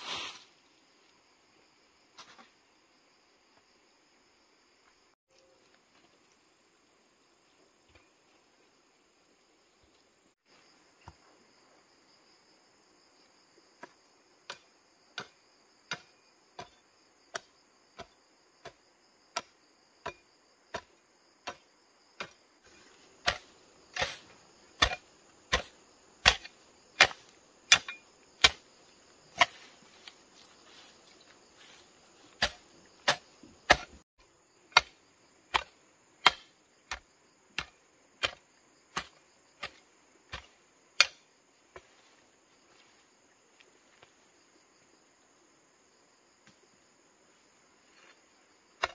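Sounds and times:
high insect drone: 0:00.0 - 0:48.9
hoe chopping into soil: 0:13.8 - 0:28.7, 0:29.3 - 0:34.0, 0:34.7 - 0:42.2.

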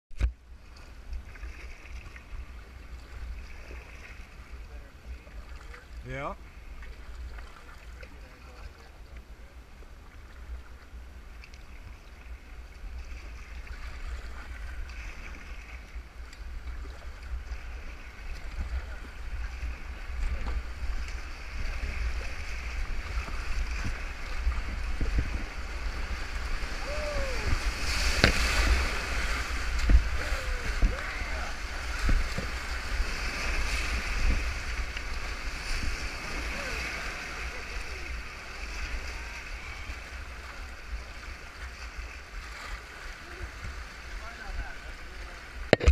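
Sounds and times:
wind rumbling on microphone: 0:06.5 - 0:45.9
whitewater splash: 0:13.0 - 0:45.9
river rapids rushing: 0:25.5 - 0:41.0.

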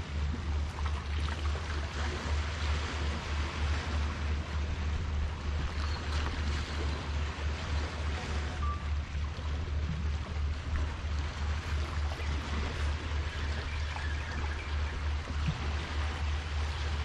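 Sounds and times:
wind buffeting the microphone: 0:00.0 - 0:08.5
small waves at the shore: 0:00.0 - 0:17.0.

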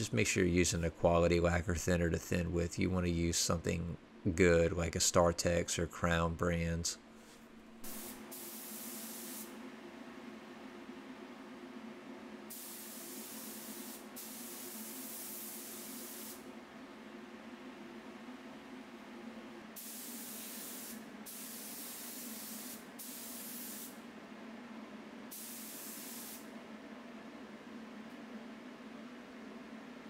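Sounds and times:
steady low hum: 0:00.0 - 0:30.0
spray gun hissing: 0:07.8 - 0:09.5, 0:12.5 - 0:16.4, 0:19.8 - 0:24.0, 0:25.3 - 0:26.5.

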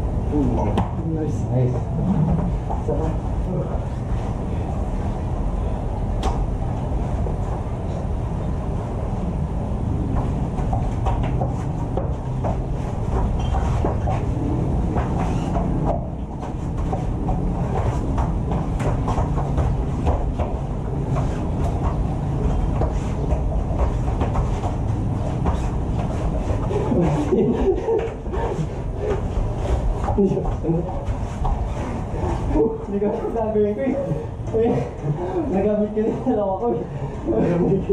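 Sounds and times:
steady low rumble: 0:00.0 - 0:37.9
thuds and slaps on foam mats: 0:10.1 - 0:14.3, 0:14.9 - 0:22.0, 0:22.6 - 0:27.0.

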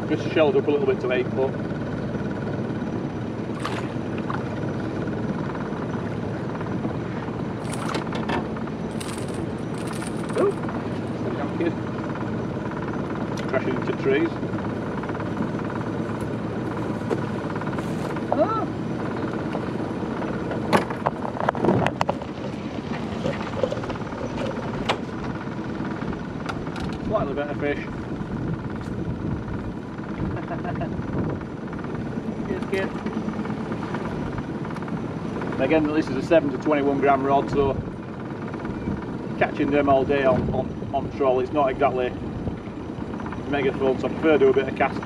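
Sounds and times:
small outboard motor running: 0:00.0 - 0:45.0
water splash: 0:03.6 - 0:04.0
lure and hooks rattling: 0:07.6 - 0:08.2, 0:08.9 - 0:10.8.

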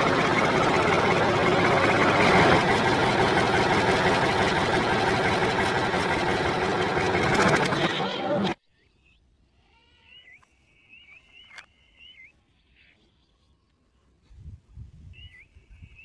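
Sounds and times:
small motor running: 0:00.0 - 0:08.6.

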